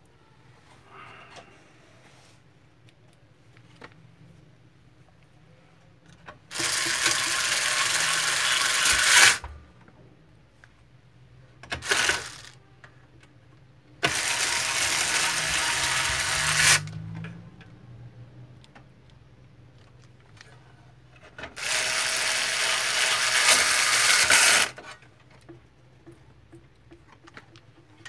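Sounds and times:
electric screwdriver driving screws: 6.5s - 9.4s, 11.8s - 12.6s, 14.0s - 16.9s, 21.6s - 24.8s.

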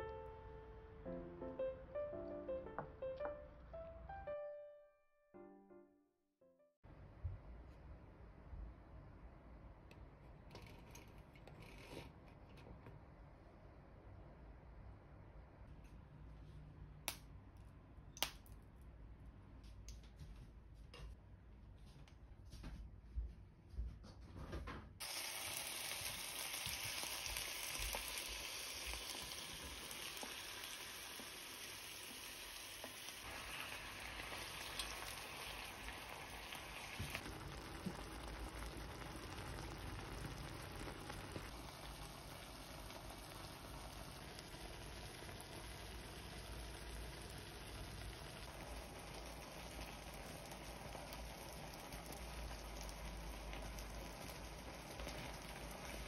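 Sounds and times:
food poured into pan: 25.0s - 56.0s
food sizzling in a pan: 25.0s - 56.0s.

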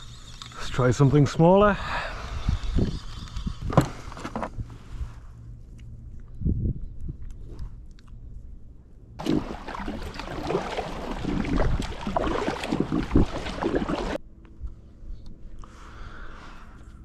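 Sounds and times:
wind buffeting microphone: 2.2s - 4.7s, 6.3s - 7.8s, 9.4s - 14.2s
paddle splashes: 9.2s - 14.2s
water rushing along hull: 9.2s - 14.2s.

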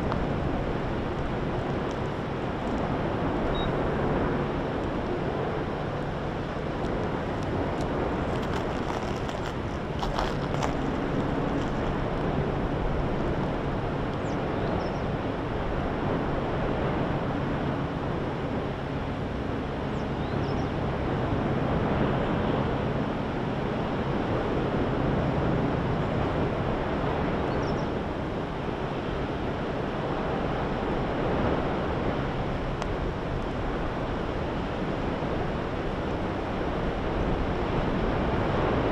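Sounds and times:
lava eruption roaring: 0.0s - 14.6s
wind on microphone: 0.0s - 38.9s.

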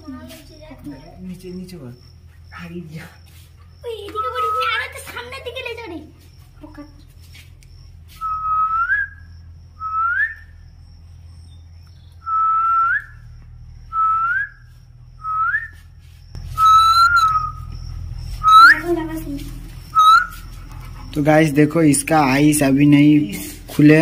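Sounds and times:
short upward-flicking whistle: 16.6s - 17.7s.

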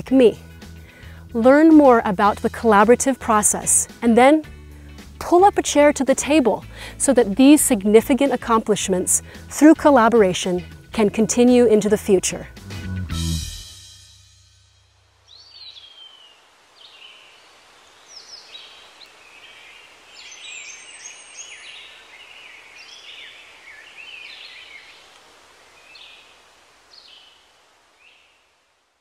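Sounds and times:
steady background hiss: 14.8s - 29.0s.

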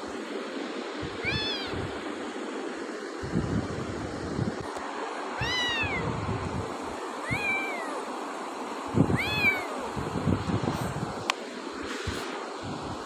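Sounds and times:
kitten meowing: 1.2s - 1.9s, 5.4s - 6.2s, 7.2s - 8.1s, 9.1s - 10.0s.

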